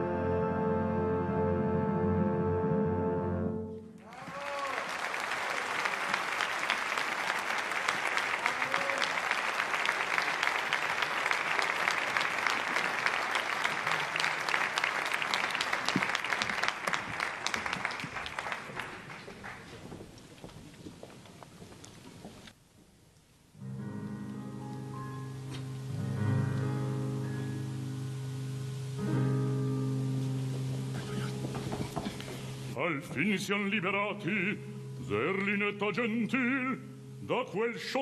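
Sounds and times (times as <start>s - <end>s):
audience applauding: 4.0s - 20.1s, 30.4s - 32.8s.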